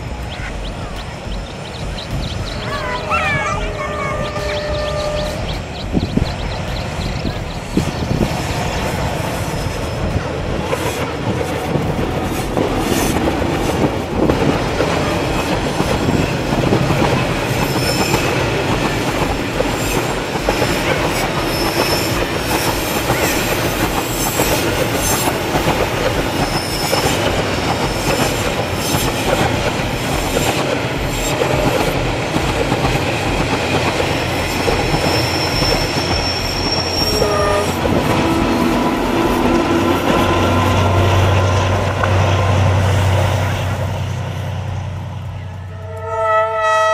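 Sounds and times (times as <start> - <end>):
train wheel squeals: 1.4 - 11.0, 17.4 - 19.0, 19.6 - 25.4, 26.0 - 29.3, 34.2 - 38.5.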